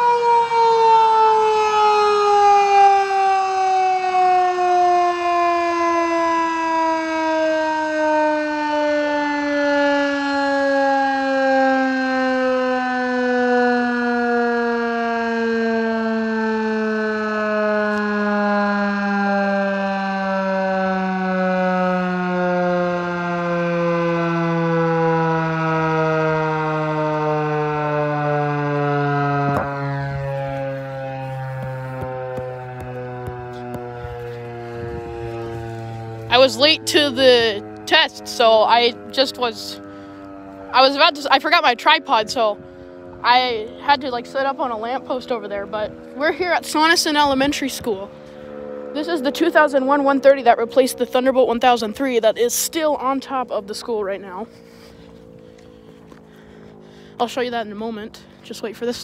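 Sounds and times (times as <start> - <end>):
siren winding down: 0.0 - 59.0.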